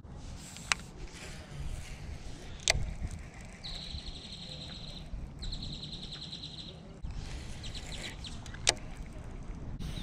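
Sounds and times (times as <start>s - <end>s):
songbird trilling: 3.6s - 7.0s.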